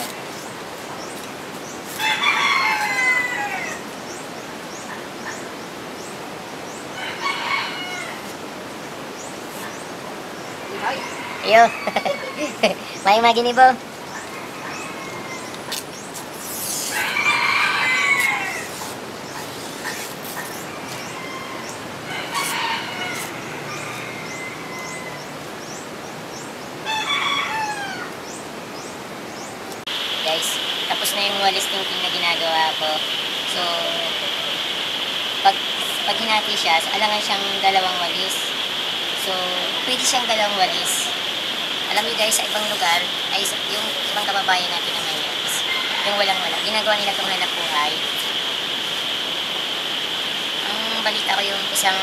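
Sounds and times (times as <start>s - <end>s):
rooster crowing: 2.0s - 3.9s, 6.9s - 8.4s, 10.6s - 13.0s, 14.2s - 15.8s, 16.8s - 19.0s, 19.8s - 25.8s, 26.8s - 28.2s, 44.4s - 52.0s.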